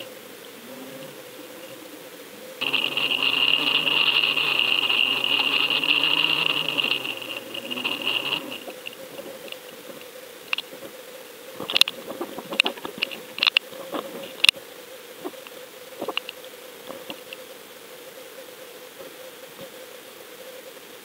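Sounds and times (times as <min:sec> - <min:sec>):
steady hum with hiss: 0:00.0 - 0:21.0
sharp clicks and knocks: 0:02.6 - 0:10.9.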